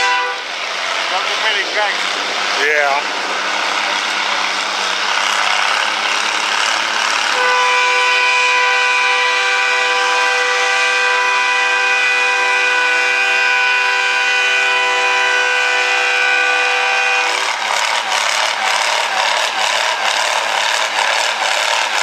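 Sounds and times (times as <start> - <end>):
tractor engine under load: 0.4 - 10.5, 16.0 - 22.0
rough rattling sound: 0.9 - 7.4, 17.3 - 22.0.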